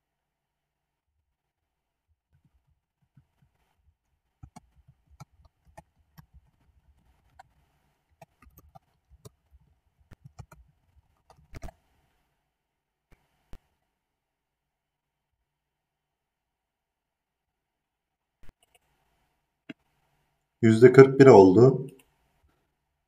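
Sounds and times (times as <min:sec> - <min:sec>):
faint irregular clicks and knocks: 0:02.3 - 0:12.3, 0:18.4 - 0:20.5.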